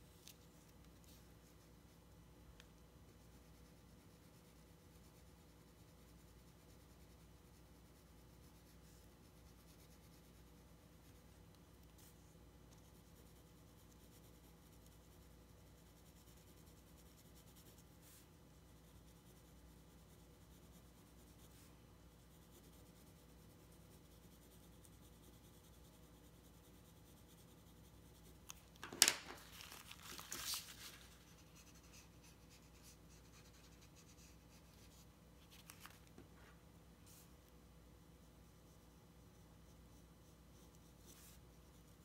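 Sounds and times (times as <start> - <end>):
pencil shading on paper: 3.1 - 28.6, 31.2 - 35.1, 38.2 - 42.0
paper sheet crackling and rustling: 28.8 - 31.4, 35.4 - 36.2.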